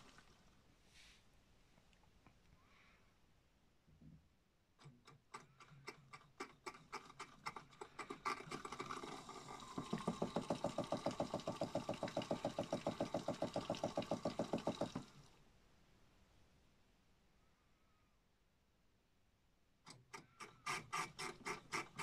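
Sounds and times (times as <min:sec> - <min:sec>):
toy washing machine spinning: 0:05.6 - 0:15.2, 0:20.2 - 0:22.0.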